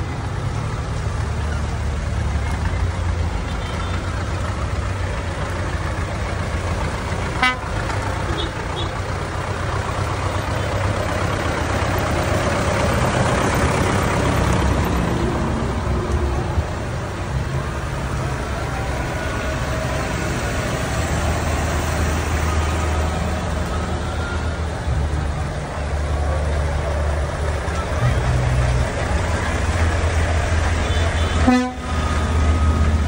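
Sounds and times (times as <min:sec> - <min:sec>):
diesel engines driving past: 0:00.0 - 0:33.0.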